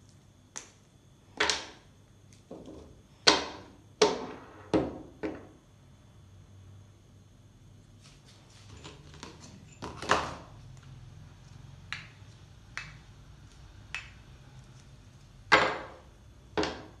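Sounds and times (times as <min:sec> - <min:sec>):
objects knocking on hard tabletop: 0:02.5 - 0:05.5, 0:15.5 - 0:16.0.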